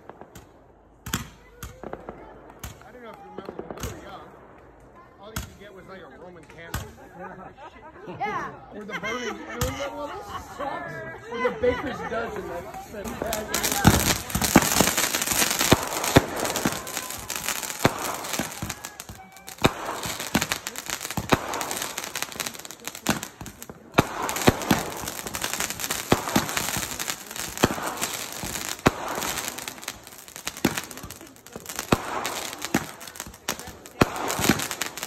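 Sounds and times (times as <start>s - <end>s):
firework pops and bangs: 0.0s - 5.6s, 12.7s - 35.0s
spark fountains hissing and crackling: 12.4s - 35.0s.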